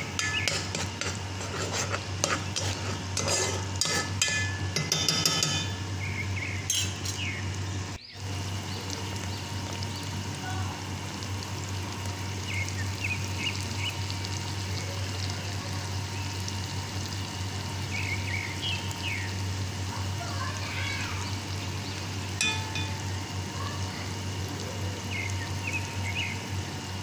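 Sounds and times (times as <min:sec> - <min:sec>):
tomato paste sizzling in oil: 0:00.0 - 0:27.0.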